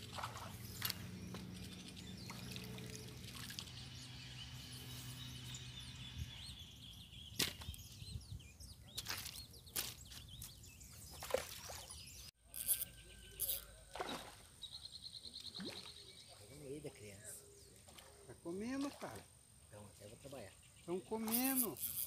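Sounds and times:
water splashing and dripping: 0.0s - 3.9s.

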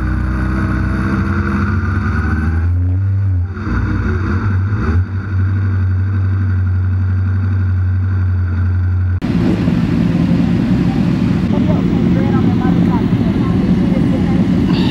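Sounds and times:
several motorcycles idling: 0.0s - 14.9s
motorcycle engine idling: 8.3s - 14.9s.

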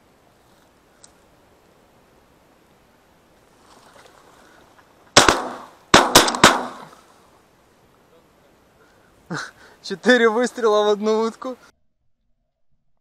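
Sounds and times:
shotgun shots: 5.2s - 7.0s.

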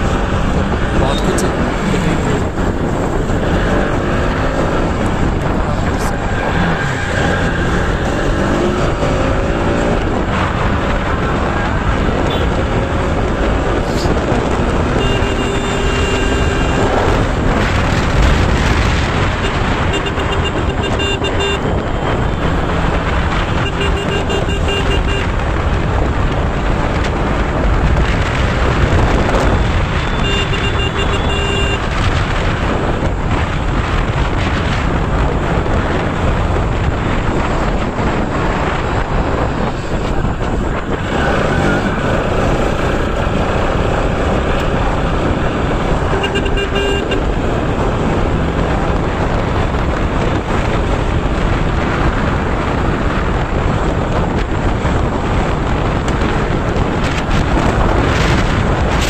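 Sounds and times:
motorcycle engine: 0.0s - 59.0s
wind rush on microphone: 0.0s - 59.0s
vehicle horn beeping: 12.2s - 12.5s, 14.9s - 17.0s, 19.4s - 21.8s, 23.5s - 25.3s, 29.5s - 32.0s, 46.0s - 47.3s.

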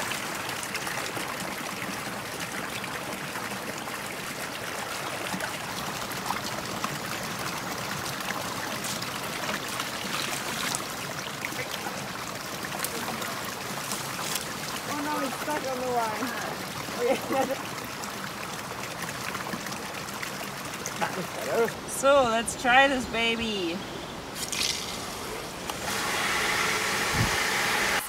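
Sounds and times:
stream water spilling into pool: 0.0s - 22.8s, 24.2s - 28.0s.

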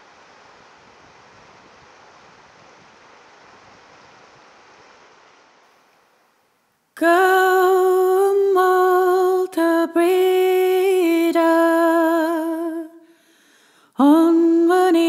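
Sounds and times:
soft rushing noise: 0.0s - 6.8s.

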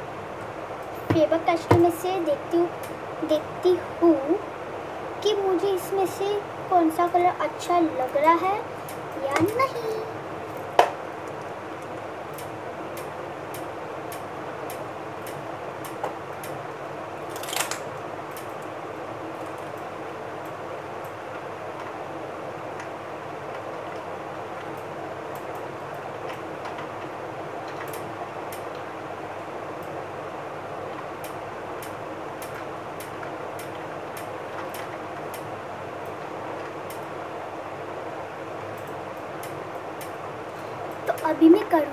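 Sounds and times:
room hum: 0.0s - 41.9s
faint regular ticking: 10.6s - 16.7s, 30.9s - 37.1s, 38.6s - 41.9s.

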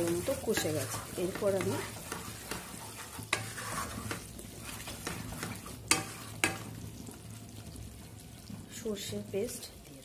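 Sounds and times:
spatula knocking on pan: 0.0s - 4.2s, 5.0s - 6.8s
spatula scraping a pan: 0.0s - 7.0s
paste sizzling in oil: 0.0s - 10.0s.

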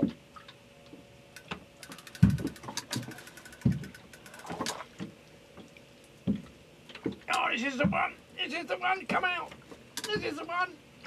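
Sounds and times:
fishing reel ticking: 1.4s - 4.8s
knocks from handling fishing rod: 2.2s - 5.1s.

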